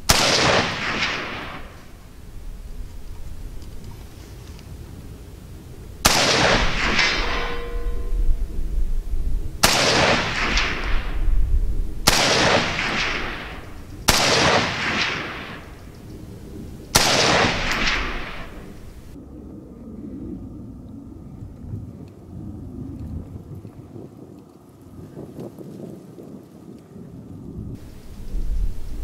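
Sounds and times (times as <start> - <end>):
rifle shots with echo: 0.0 - 2.1, 6.0 - 8.0, 9.6 - 16.1, 16.9 - 19.2.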